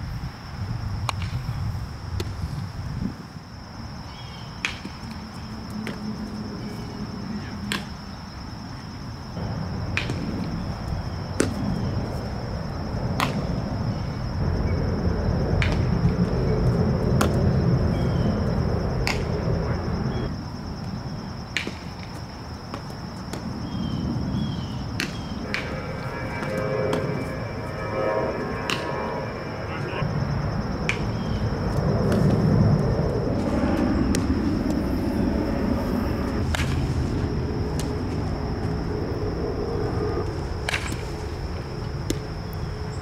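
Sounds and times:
low rumble: 0:25.3 - 0:40.3
steady high-pitched tone: 0:25.4 - 0:31.7.

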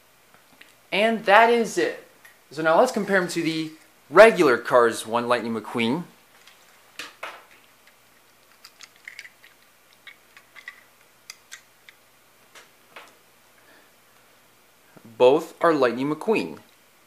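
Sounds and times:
toy cars clicking together: 0:07.8 - 0:12.0.

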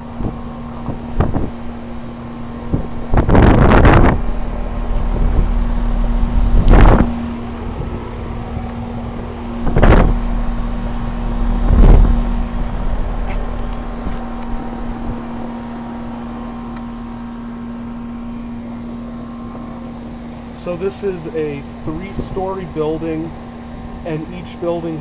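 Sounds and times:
heat pump humming: 0:00.0 - 0:25.0
microphone noise rumbles: 0:00.1 - 0:18.8.

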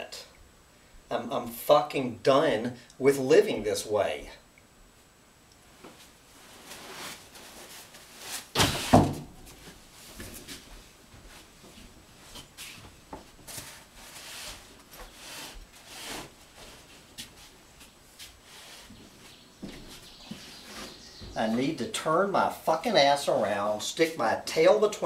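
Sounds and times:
objects clunking and rustling: 0:06.6 - 0:10.7
loud thumps: 0:08.5 - 0:09.5.

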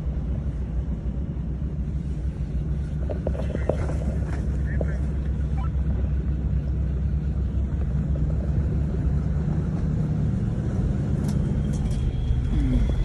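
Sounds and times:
diesel engine rumbling: 0:00.0 - 0:13.0.

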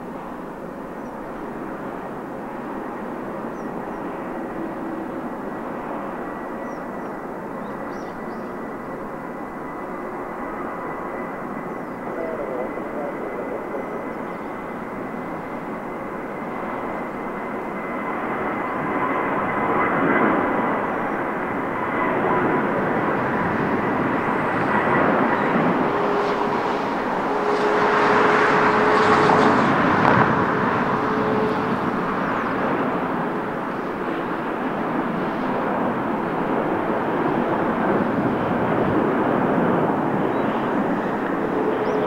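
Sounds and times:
jet airliner taking off: 0:00.0 - 0:42.0.

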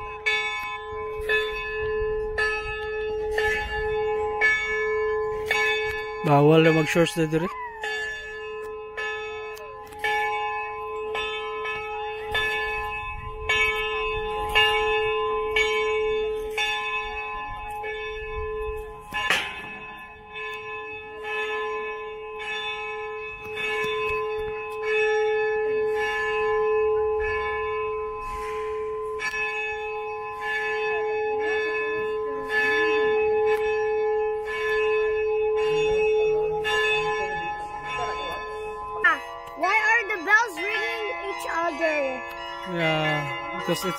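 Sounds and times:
church bell tolling: 0:00.0 - 0:43.9.

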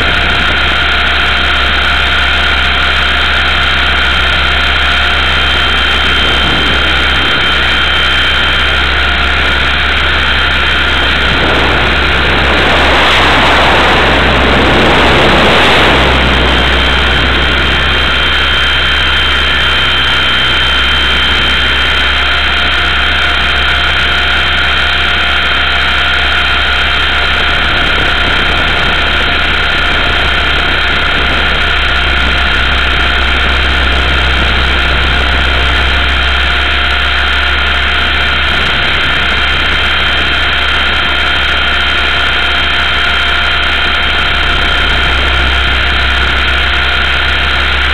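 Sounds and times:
high electric motor whine: 0:00.0 - 0:47.9
rotor rushing noise: 0:00.0 - 0:47.9.

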